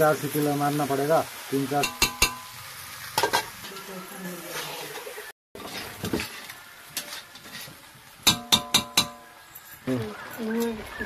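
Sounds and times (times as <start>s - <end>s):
curry sizzling: 0.0s - 11.0s
metal spatula striking iron pan: 1.8s - 2.6s, 8.2s - 9.4s.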